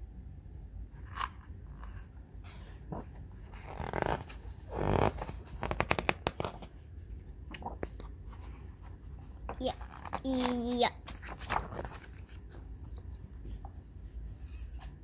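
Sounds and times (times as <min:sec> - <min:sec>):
book pages turning: 0:01.0 - 0:15.0.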